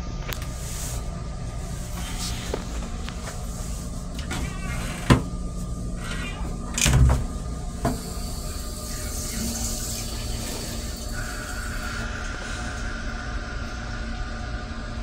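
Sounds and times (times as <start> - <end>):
railcar rumble: 7.2 - 15.0.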